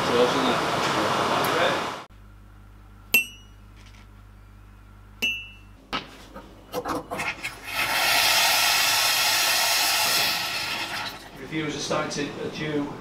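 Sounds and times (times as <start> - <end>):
hot water hissing into mug: 6.9 - 11.4.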